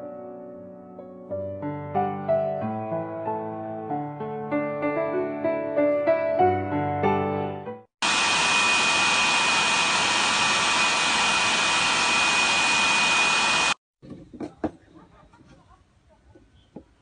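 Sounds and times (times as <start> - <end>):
heater fan blowing with whine: 8.1 - 13.8.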